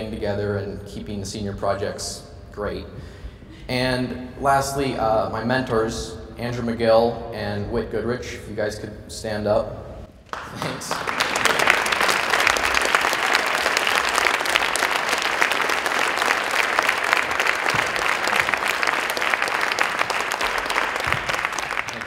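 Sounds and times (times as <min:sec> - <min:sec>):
audience applauding: 0:10.2 - 0:22.0.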